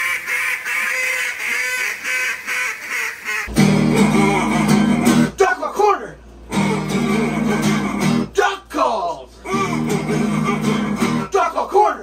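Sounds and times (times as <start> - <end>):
duck quacks: 0.0 - 3.5
acoustic guitar chord strummed: 3.5 - 8.6, 9.4 - 11.7.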